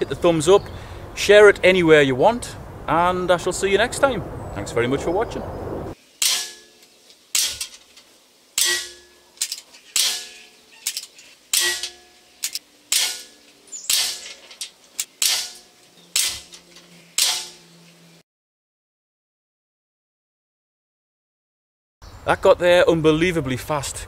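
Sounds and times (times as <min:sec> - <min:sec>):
pellets striking steel target: 0:06.2 - 0:08.0, 0:08.6 - 0:17.7.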